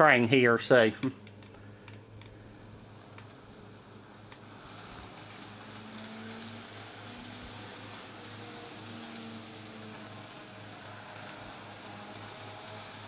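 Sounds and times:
model train running: 0.0s - 13.0s
steady hiss: 0.0s - 13.0s.

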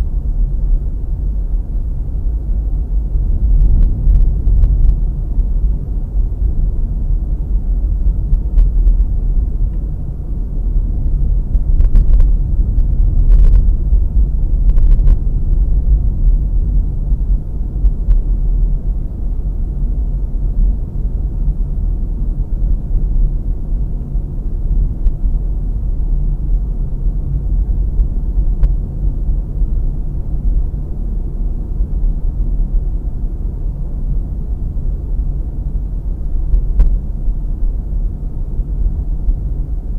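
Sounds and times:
car engine and tyre rumble: 0.0s - 39.9s.

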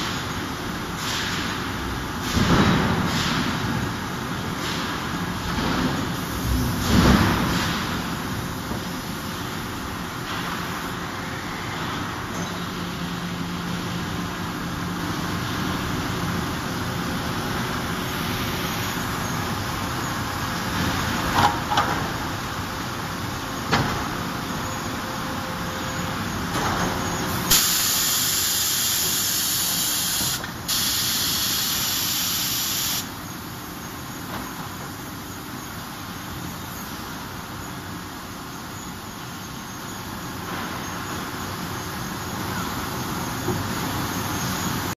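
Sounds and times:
loud hissing spray: 27.3s - 33.2s.

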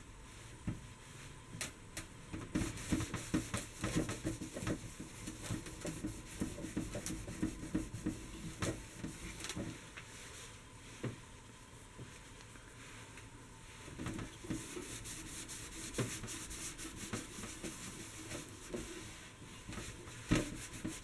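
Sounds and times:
cloth rubbing on copper: 13.6s - 21.0s.

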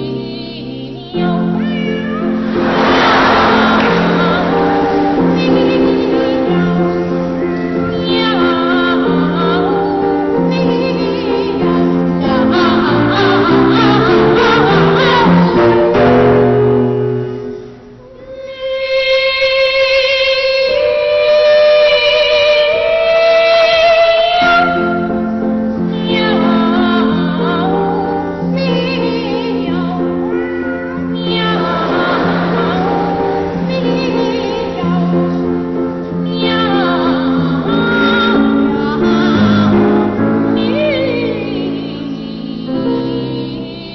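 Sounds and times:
boy sopranos singing duet: 0.0s - 16.5s, 18.1s - 43.9s
piano chords: 0.0s - 43.9s
low sustained accompaniment chords: 2.2s - 10.2s.

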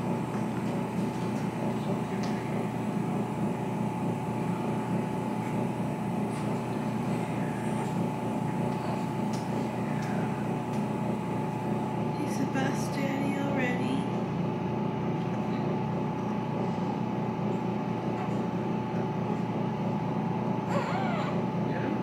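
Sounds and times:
machinery hum: 0.0s - 22.0s.

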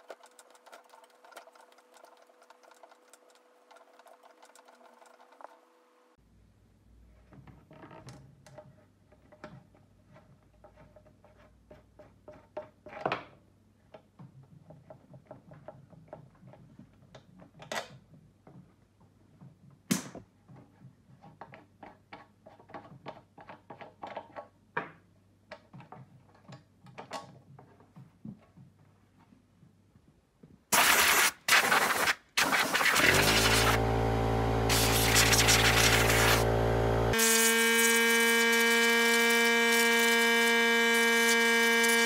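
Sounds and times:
terminal nuts clicking and scraping: 0.0s - 5.7s.

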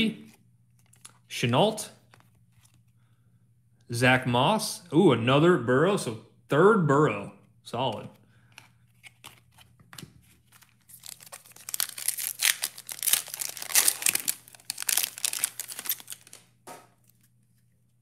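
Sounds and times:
wrapper crinkling and tearing: 10.4s - 17.2s.

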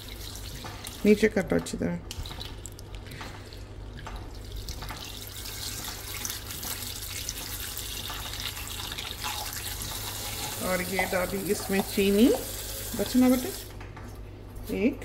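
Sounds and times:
wet churning of eggs: 2.1s - 12.2s
milk frother humming: 7.3s - 13.7s.

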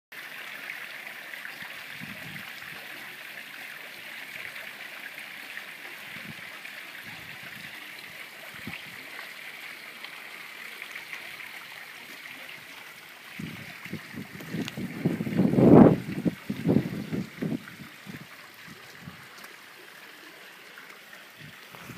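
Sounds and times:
wind gusts on microphone: 1.9s - 2.8s, 6.1s - 7.7s, 8.5s - 9.0s, 13.3s - 19.4s, 21.4s - 21.9s.

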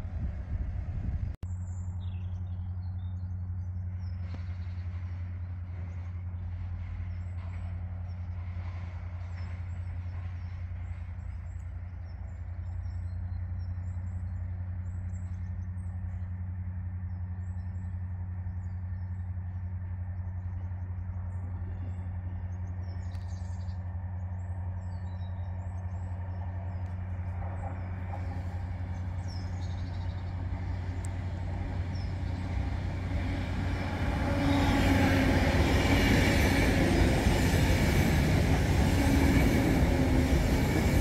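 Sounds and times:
small birds chirping: 20.2s - 33.3s.

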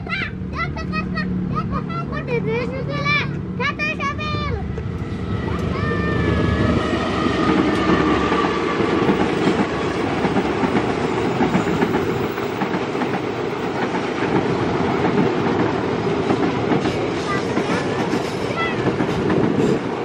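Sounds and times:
train wheels clattering on rails: 6.6s - 20.0s.

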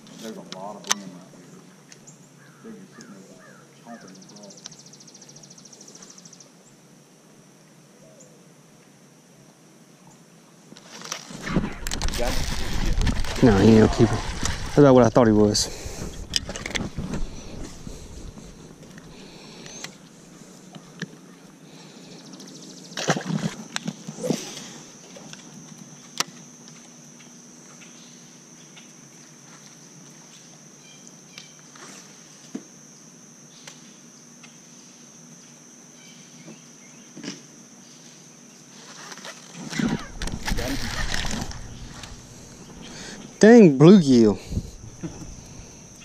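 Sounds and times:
constant high-pitched drone: 0.0s - 8.6s, 9.3s - 46.0s
fishing tackle handling noise: 10.8s - 14.9s, 15.7s - 20.1s, 39.6s - 43.4s.

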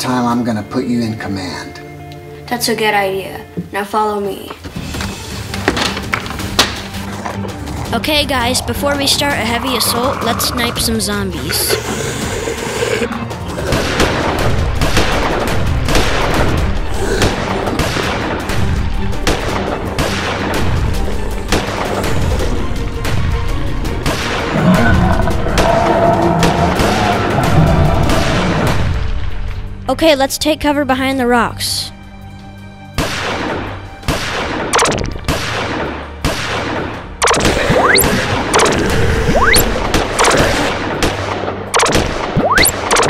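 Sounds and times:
background music: 0.0s - 43.0s
gunshots: 33.0s - 38.9s.

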